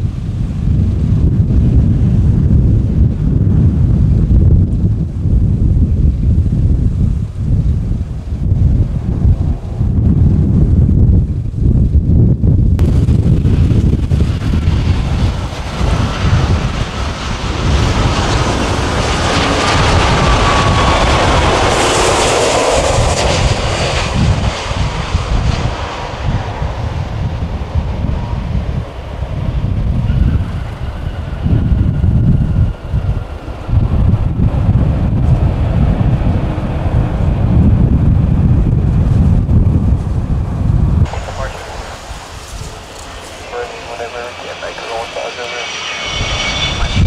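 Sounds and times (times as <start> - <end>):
jet airliner flying past: 0.0 - 11.8, 12.8 - 47.0
wind buffeting microphone: 0.0 - 47.0
faint falling whine: 41.1 - 47.0.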